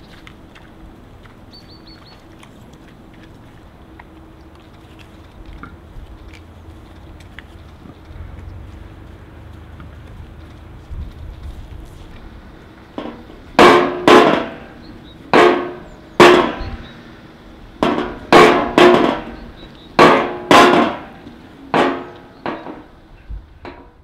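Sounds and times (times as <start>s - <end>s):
loud drum hits: 13.0s - 17.0s, 17.8s - 21.2s.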